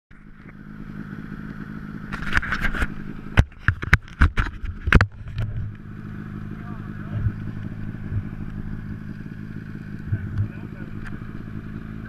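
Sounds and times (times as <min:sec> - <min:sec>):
snowmobile engine idling: 0:00.2 - 0:12.0
camera handling knocks and scrapes: 0:02.1 - 0:05.8.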